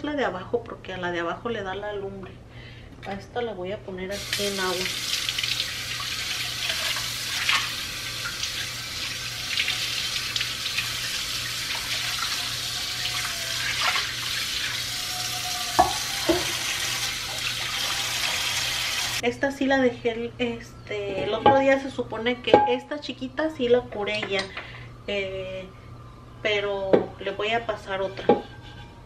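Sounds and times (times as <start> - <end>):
faucet water splashing into dish: 4.2 - 19.0.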